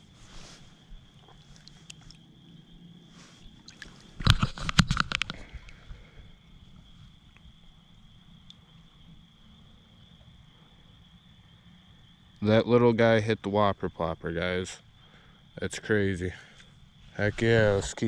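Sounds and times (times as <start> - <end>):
night insects trilling: 0.0 - 18.0
fish splashing into water: 3.5 - 5.8.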